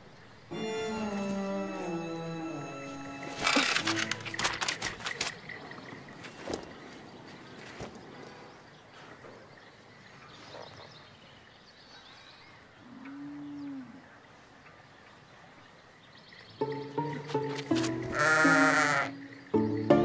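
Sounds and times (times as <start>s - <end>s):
cow mooing: 18.1s - 19.2s.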